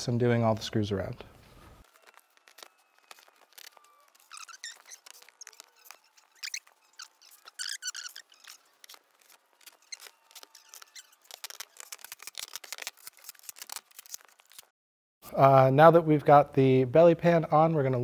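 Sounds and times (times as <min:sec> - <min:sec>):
plastic squeaks: 0:01.4 - 0:14.7.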